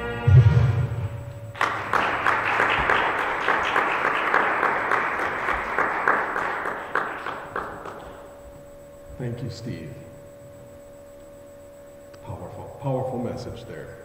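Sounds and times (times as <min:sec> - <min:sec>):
congregation applauding: 0:01.5 - 0:08.3.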